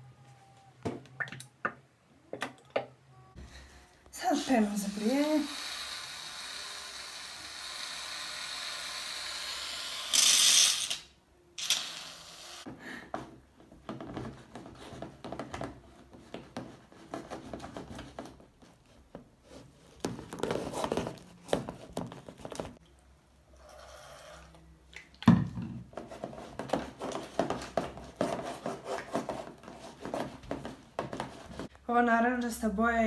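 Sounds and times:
utensil stirring foam in tub: 26.0 - 31.7.

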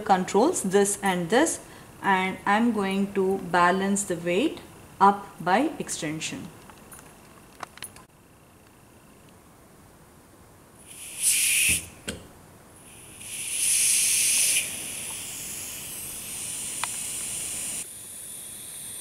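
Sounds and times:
compressed air hissing: 10.8 - 12.0, 12.8 - 19.0.

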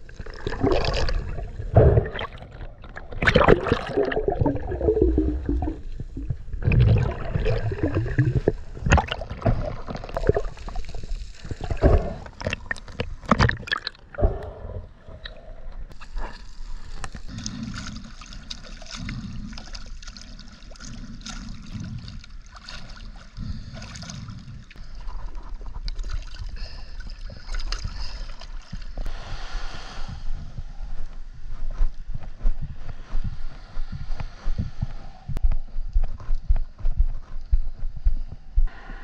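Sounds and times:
water sloshing and splashing: 0.0 - 14.4, 15.1 - 29.1
underwater gurgling and crackling: 0.0 - 29.1.

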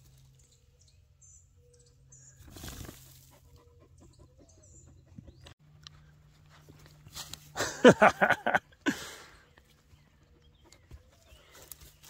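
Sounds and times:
animals pawing at loose dirt: 0.0 - 1.0, 2.3 - 3.8, 5.3 - 12.0.

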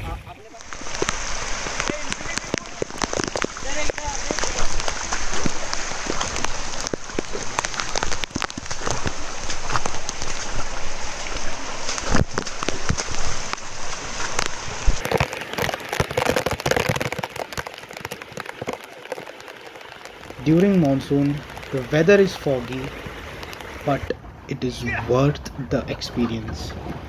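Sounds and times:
heavy rain: 0.0 - 24.1
water rushing over rocks: 0.0 - 25.4.

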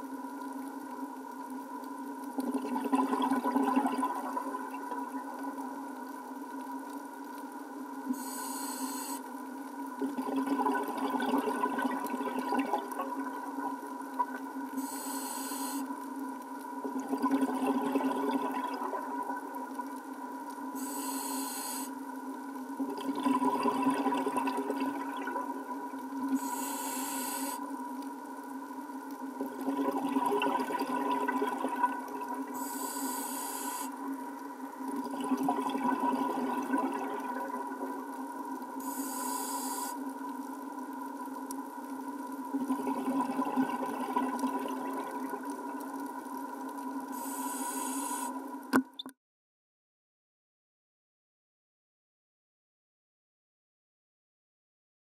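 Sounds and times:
exhaled bubbles rushing: 2.4 - 5.3, 10.0 - 13.5, 16.9 - 19.5, 22.8 - 25.7, 29.4 - 32.5, 34.9 - 38.0, 42.5 - 45.8
diver breathing through regulator: 26.4 - 27.6, 32.6 - 33.9, 38.8 - 40.0, 47.2 - 48.4.

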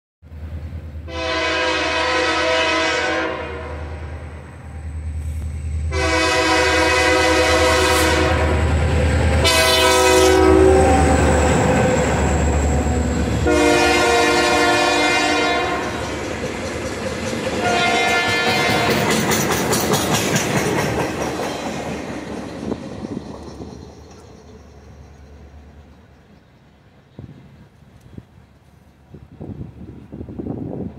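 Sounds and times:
locomotive engine rumble: 0.3 - 30.9
locomotive air horn blasts: 1.0 - 4.2, 5.9 - 8.7, 9.4 - 16.0, 17.6 - 19.1
train wheels clicking on rail joints: 4.4 - 5.9, 10.6 - 30.6.

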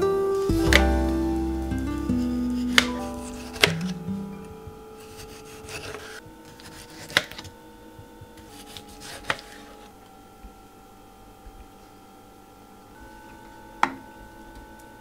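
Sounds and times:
soft background music: 0.0 - 7.8
knife slicing tomato: 5.0 - 7.4.

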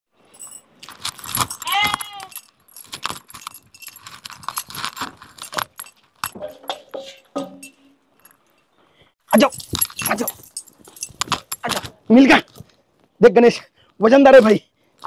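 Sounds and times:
metal chains jangling: 0.2 - 8.7, 9.3 - 11.9.

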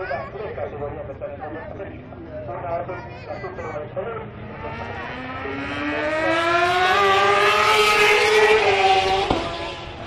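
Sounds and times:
racing motorcycle accelerating past: 4.5 - 10.0.

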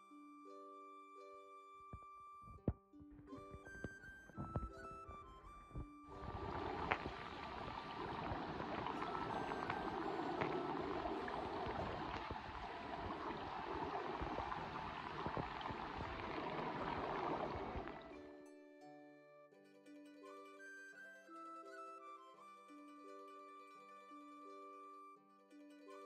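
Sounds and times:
small underwater clicks: 2.0 - 18.2
underwater stream bubbling rush: 6.2 - 18.2.

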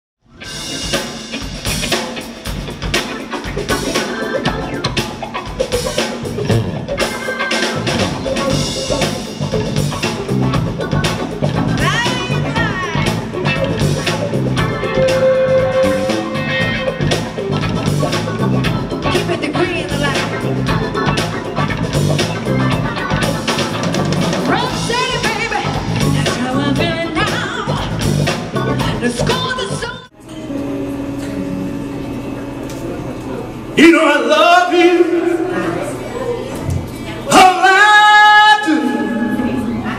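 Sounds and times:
live band music: 0.2 - 39.9
woman singing lead vocal: 24.5 - 27.9.

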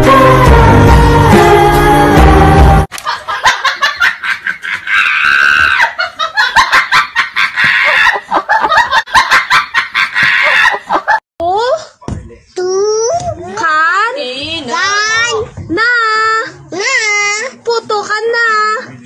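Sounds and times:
music: 0.0 - 2.9
young man laughing hard: 3.0 - 11.2.

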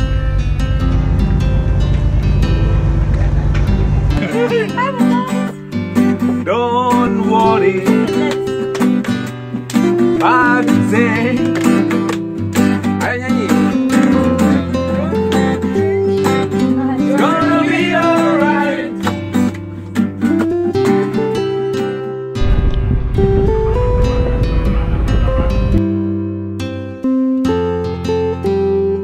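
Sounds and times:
acoustic guitar strumming: 0.0 - 29.0
person singing: 6.4 - 8.7, 10.1 - 11.8, 13.5 - 19.1
hands clapping: 7.8 - 14.6, 18.2 - 21.1.

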